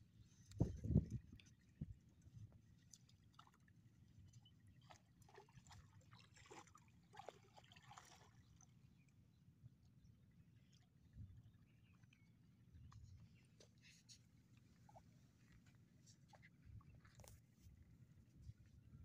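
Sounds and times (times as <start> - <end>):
river water trickling: 0.1 - 18.9
small splashes: 2.8 - 8.9.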